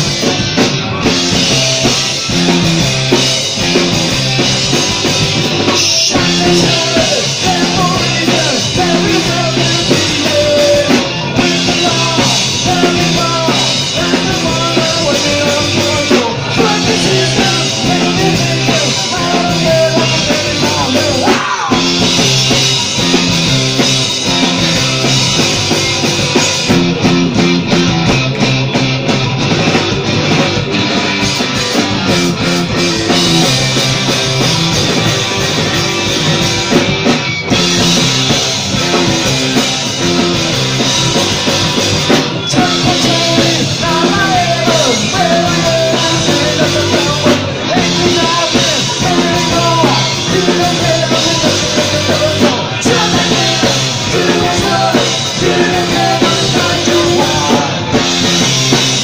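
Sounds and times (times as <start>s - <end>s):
drum kit: 0.0s - 59.0s
electric guitars: 0.0s - 59.0s
man singing: 5.6s - 22.6s, 42.4s - 58.1s.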